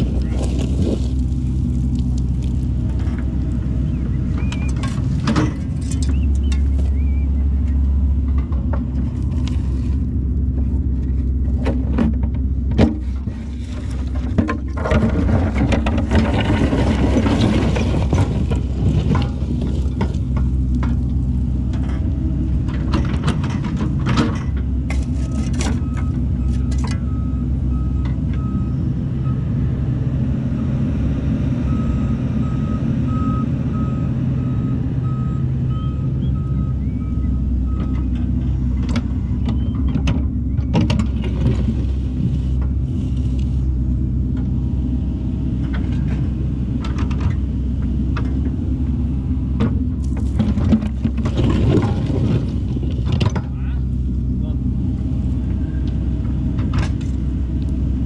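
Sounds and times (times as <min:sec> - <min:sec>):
bucket clanking and scraping on gravel: 0:00.0 - 0:03.4, 0:04.4 - 0:07.0, 0:11.5 - 0:21.0, 0:50.0 - 0:53.8
excavator diesel engine running: 0:00.0 - 0:58.0
faint reversing alarm beeping: 0:25.2 - 0:29.5, 0:31.6 - 0:38.1.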